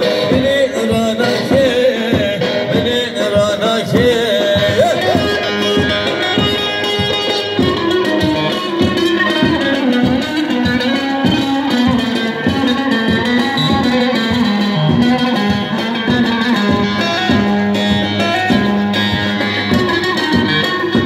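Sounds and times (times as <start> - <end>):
electric saz melody: 0.0 - 21.0
steady drum beat: 0.0 - 21.0.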